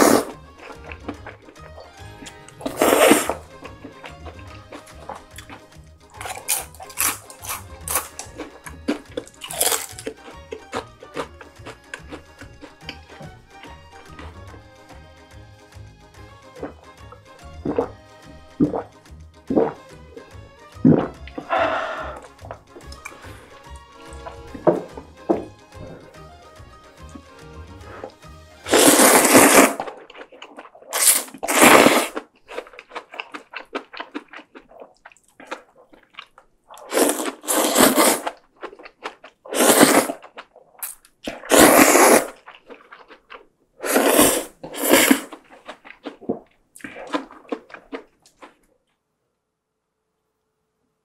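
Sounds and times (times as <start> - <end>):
loud noodle slurping: 0.0 - 14.7, 17.6 - 19.9, 20.9 - 26.3, 27.7 - 36.0, 36.7 - 43.2, 43.8 - 48.6
faint chewing: 0.0 - 15.0, 20.9 - 26.3, 27.0 - 49.0
background music: 0.0 - 29.9.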